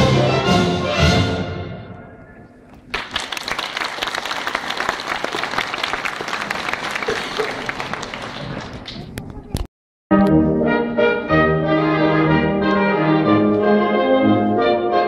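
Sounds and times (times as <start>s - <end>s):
orchestral music: 0.0s - 2.2s, 10.1s - 15.0s
audience applause: 2.9s - 9.2s.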